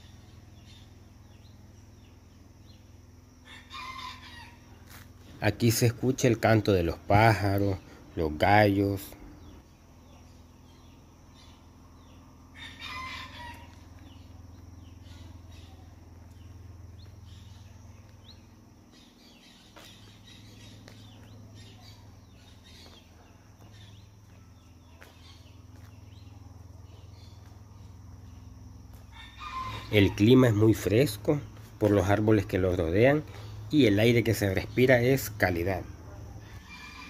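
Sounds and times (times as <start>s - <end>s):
small birds chirping: 0.0s - 37.0s
rooster crowing: 3.4s - 5.0s, 12.0s - 14.4s, 29.0s - 30.6s, 36.3s - 37.0s.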